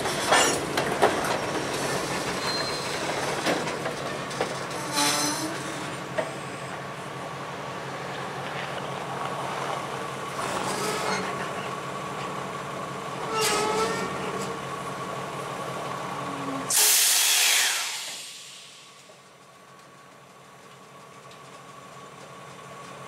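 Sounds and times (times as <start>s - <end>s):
freight train rumbling on rails: 0.0s - 23.0s
wheel squeal: 0.1s - 0.6s, 1.2s - 3.3s, 4.6s - 6.0s, 10.4s - 11.6s, 13.2s - 14.6s
loud hiss: 16.7s - 19.1s.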